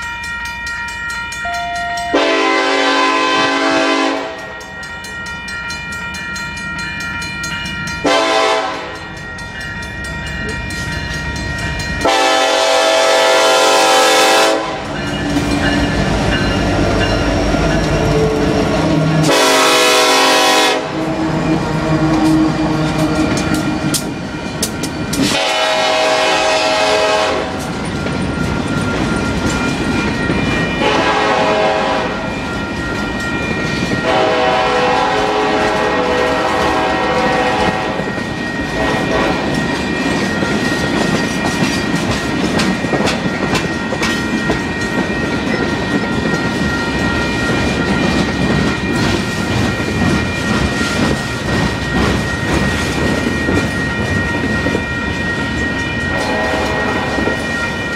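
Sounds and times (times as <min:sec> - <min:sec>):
locomotive air horn blasts: 0:02.0 - 0:04.5, 0:08.0 - 0:09.0, 0:12.0 - 0:14.9, 0:19.2 - 0:21.2, 0:25.2 - 0:27.7, 0:30.8 - 0:32.2, 0:34.0 - 0:38.0, 0:38.8 - 0:39.6, 0:56.1 - 0:57.4
train wheels clattering over rails: 0:13.3 - 0:31.7, 0:32.6 - 0:57.9.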